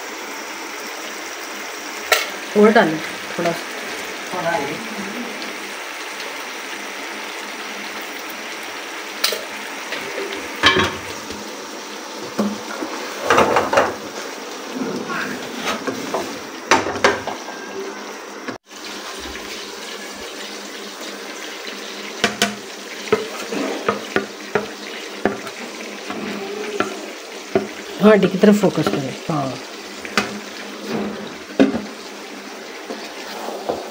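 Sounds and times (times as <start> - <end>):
sauce simmering and sizzling: 0.0 - 33.9
spatula scraping a wok: 23.0 - 27.9, 30.1 - 31.4.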